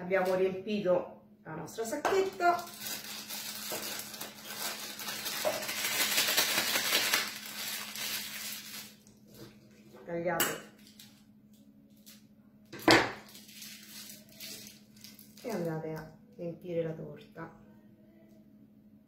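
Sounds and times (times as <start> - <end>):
plastic piping bag crinkling: 2.1 - 9.2, 13.2 - 15.8.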